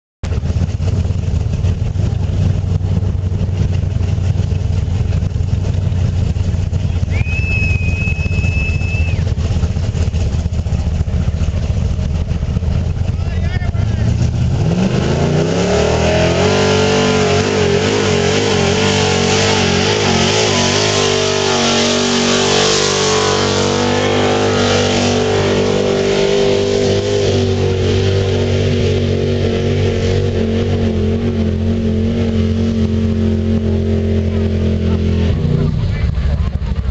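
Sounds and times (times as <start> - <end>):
truck engine revving hard: 0.2 - 36.9.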